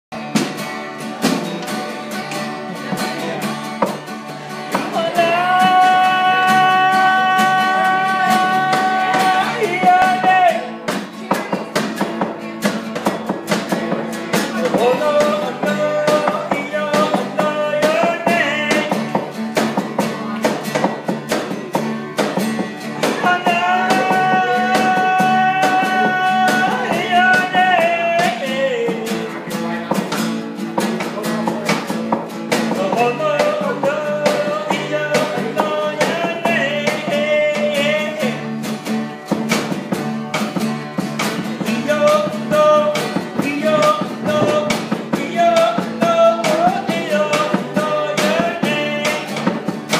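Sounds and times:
fast guitar strumming: 0.1 - 49.9
person singing: 4.5 - 13.1, 14.3 - 19.3, 22.9 - 30.1, 32.5 - 38.5, 41.4 - 49.9.

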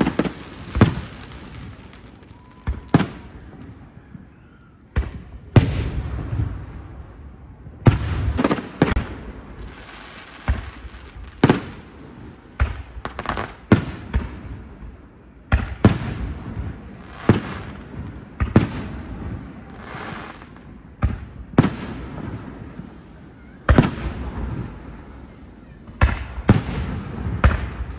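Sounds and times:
firework shells bursting: 0.0 - 3.8.

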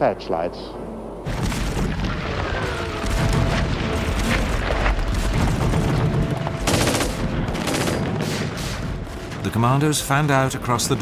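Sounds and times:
gunfire: 1.3 - 9.4.

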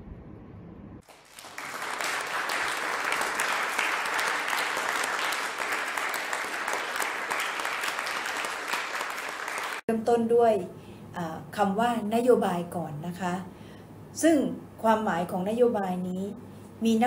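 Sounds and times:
applause: 1.0 - 9.9.

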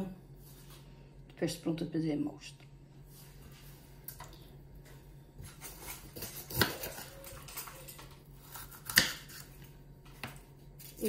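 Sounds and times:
knife cutting pepper: 5.5 - 7.7, 8.4 - 9.7.

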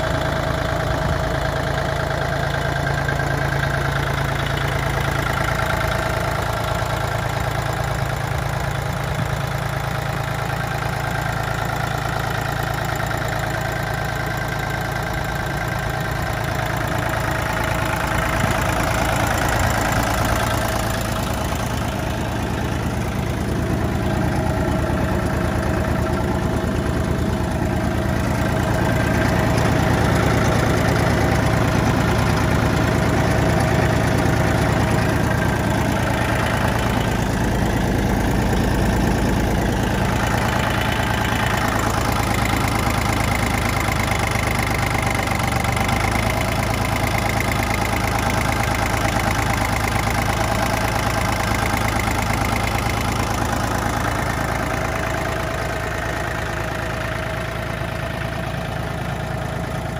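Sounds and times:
tractor diesel engine idling: 0.0 - 59.9.

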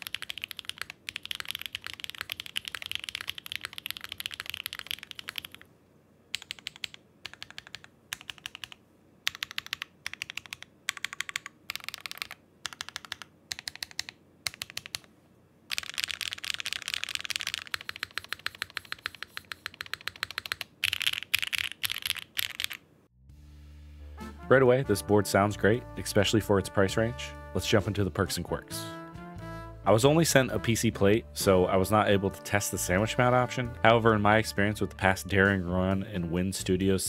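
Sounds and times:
mechanical keyboard typing: 0.0 - 5.6, 6.3 - 15.1, 15.7 - 22.8.

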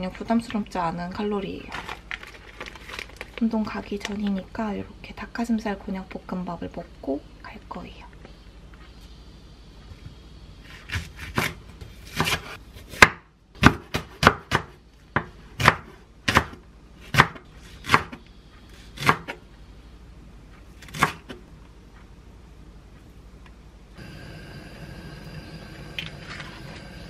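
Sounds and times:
knife chopping on wooden board: 10.9 - 18.2, 19.0 - 19.4, 20.8 - 21.4.

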